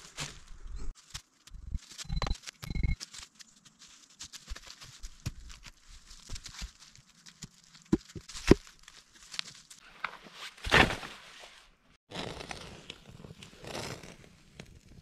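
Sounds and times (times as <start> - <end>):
boots crunching through dry leaves: 0.0 - 9.8.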